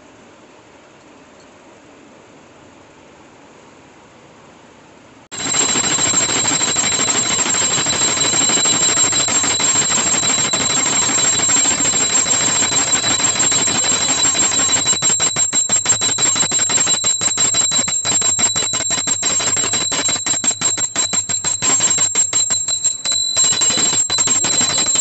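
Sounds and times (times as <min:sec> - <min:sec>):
hand bell ringing rapidly: 0:05.3 - 0:25.0.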